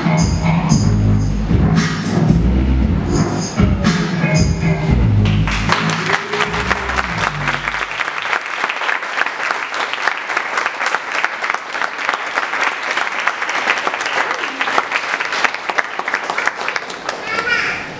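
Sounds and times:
audience applauding: 5.2 - 17.9.

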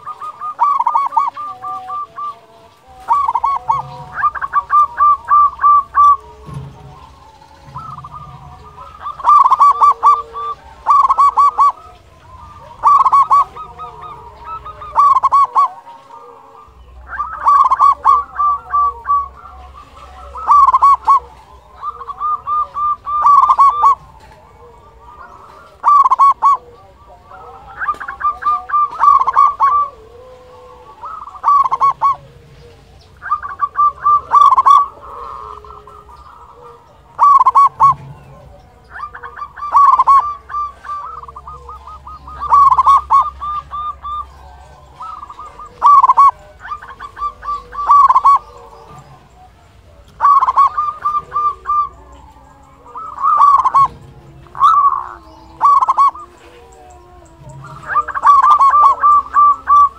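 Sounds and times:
dove cooing: 0.0 - 59.9.

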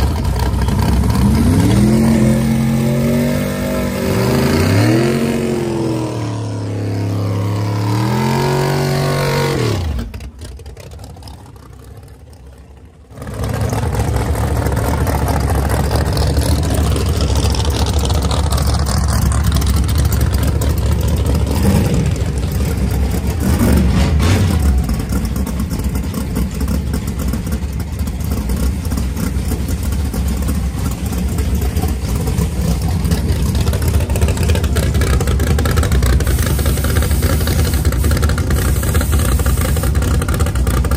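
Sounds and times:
choppy engine idling: 0.0 - 1.6, 10.0 - 40.9
race car engine revving: 0.0 - 10.4, 13.1 - 40.9
engine throttle blips: 13.2 - 40.9.

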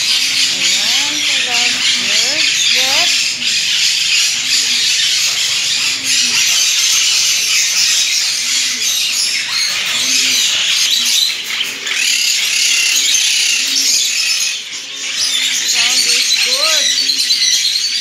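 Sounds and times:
parrots chattering and chirping: 0.0 - 18.0.

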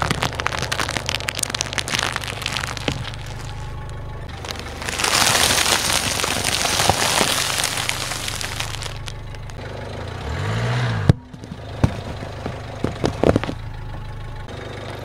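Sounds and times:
tyre crushing objects: 0.0 - 9.6, 11.4 - 13.6
car engine idling: 0.0 - 15.0.

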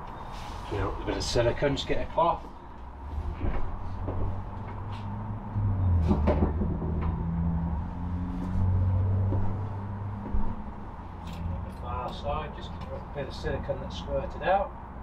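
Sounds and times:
low rumble: 3.0 - 11.8.

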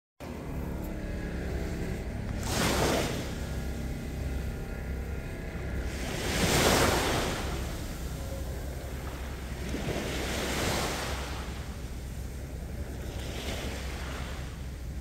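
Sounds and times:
steady low rumble: 0.2 - 15.0
small waves against concrete jetty: 2.4 - 3.9, 5.8 - 15.0.

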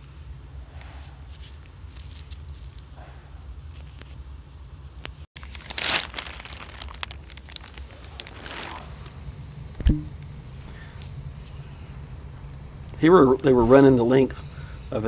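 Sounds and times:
steady low hum: 0.0 - 15.0
plastic sheeting crinkling: 5.4 - 9.2.

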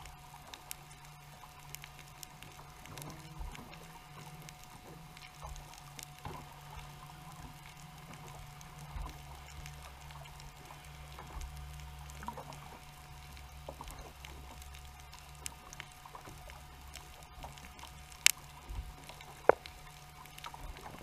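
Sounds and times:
crackling underwater clicks: 0.0 - 21.0
steady low hum: 0.0 - 21.0.

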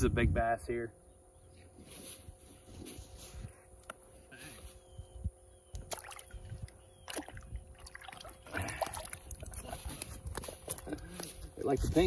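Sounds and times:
water splashing and dripping: 5.8 - 11.0.

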